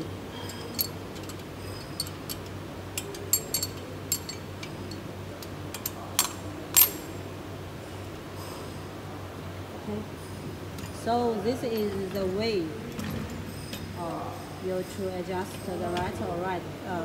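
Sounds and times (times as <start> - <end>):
steady low hum: 0.0 - 17.0
spanner clinking on metal screws: 0.3 - 7.1.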